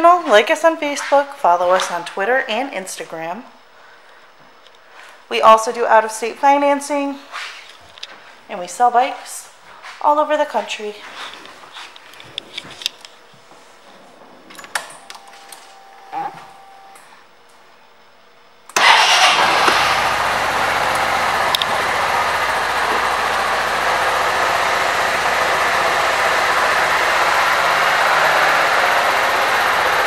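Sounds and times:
scooter engine starting and idling: 0:18.7 - 0:30.0.

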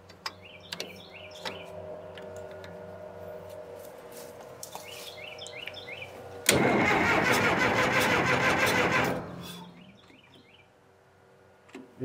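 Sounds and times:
dozer diesel engine running: 0:05.9 - 0:10.0
dozer starter cranking: 0:06.4 - 0:10.0.

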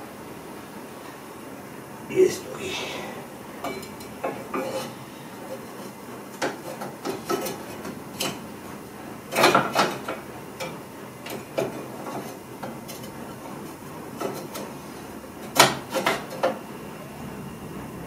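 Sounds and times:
metal stove parts clanking: 0:03.6 - 0:08.5, 0:09.3 - 0:14.8, 0:15.4 - 0:16.6.

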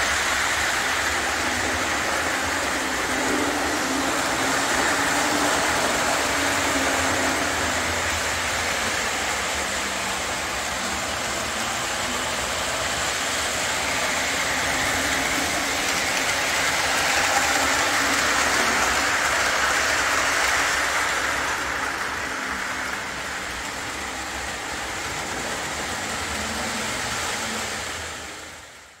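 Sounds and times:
model trains running on track: 0:00.0 - 0:29.0.

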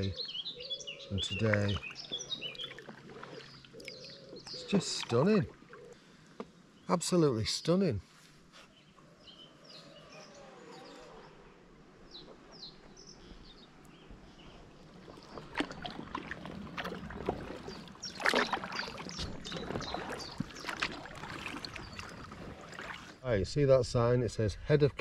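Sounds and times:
small birds chirping: 0:00.0 - 0:15.4, 0:17.4 - 0:23.2
paddle splashes and drips: 0:01.2 - 0:06.6, 0:13.7 - 0:23.2.

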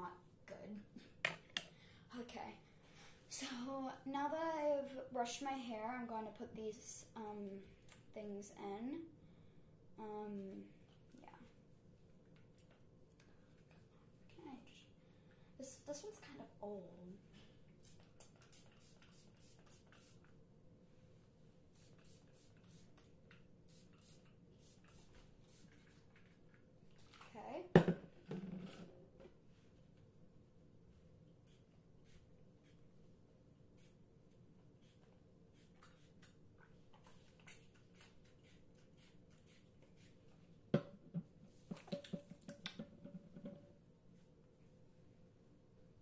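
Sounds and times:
spray bottle spritzes: 0:17.8 - 0:20.2, 0:21.8 - 0:23.0.

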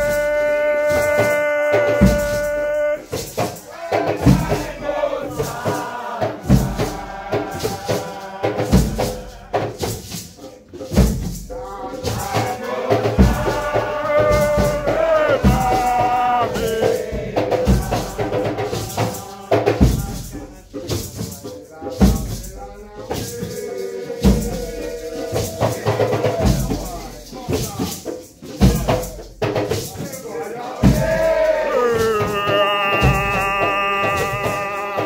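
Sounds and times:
deep drum beats: 0:00.0 - 0:05.6, 0:13.1 - 0:18.9, 0:28.6 - 0:29.8, 0:30.8 - 0:35.0
light percussion strikes: 0:00.0 - 0:13.7, 0:14.3 - 0:34.7
group chanting: 0:00.0 - 0:20.6, 0:22.0 - 0:27.6, 0:30.2 - 0:35.0.

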